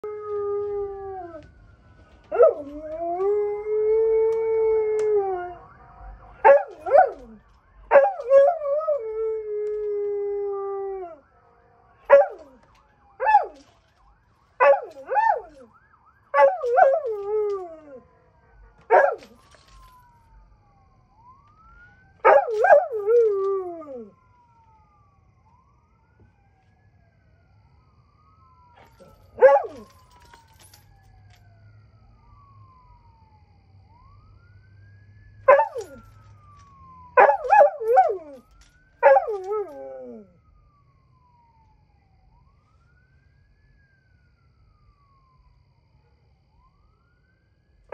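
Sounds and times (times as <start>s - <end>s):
faint siren wailing: 0.0s - 47.9s
dog howling and yipping: 29.4s - 29.9s, 37.2s - 38.4s, 39.0s - 40.2s.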